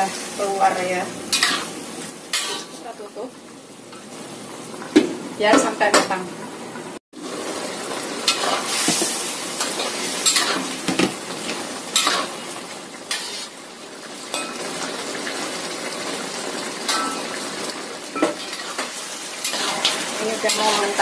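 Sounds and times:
food sizzling in a wok: 0.0 - 21.0
spatula scraping a wok: 1.3 - 2.8, 8.2 - 10.8, 11.9 - 12.5, 13.1 - 13.6, 18.3 - 21.0.

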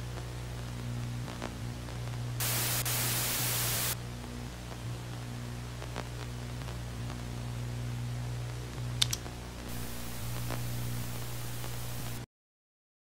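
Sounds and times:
video static hiss: 0.0 - 12.3
electrical hum: 0.8 - 4.0, 9.5 - 12.3
sharp clicks: 9.0 - 12.2.

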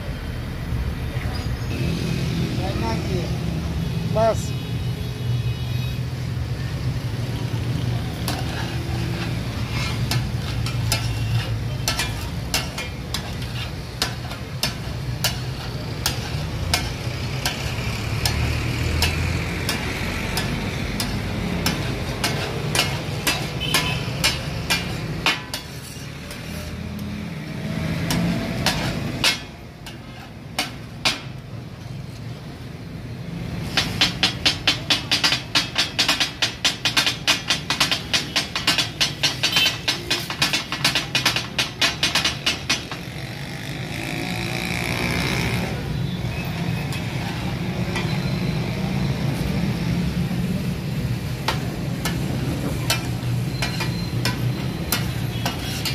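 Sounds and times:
spatulas clicking on griddle: 8.2 - 27.1, 28.0 - 31.4, 33.6 - 43.0, 51.2 - 55.9
spatulas clattering fast: 8.3 - 26.0.

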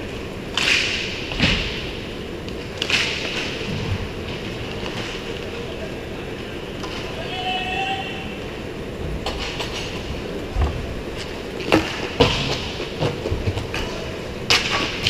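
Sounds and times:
skate wheels rolling on tiles: 0.0 - 15.0
hockey stick and puck clacks: 0.5 - 1.8, 2.4 - 3.7, 11.2 - 15.0.

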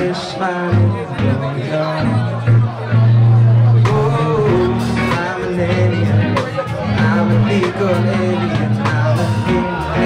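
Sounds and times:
bass guitar line: 0.0 - 10.0
rock band playing: 0.0 - 10.0
drum beat: 3.8 - 10.0.

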